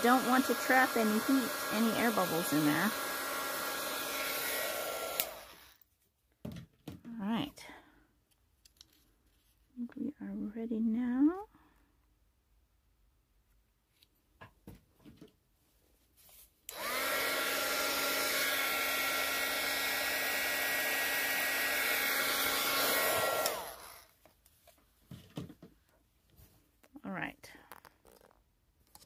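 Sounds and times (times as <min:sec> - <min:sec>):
heat gun blowing: 0:00.0 - 0:05.8, 0:16.7 - 0:24.2.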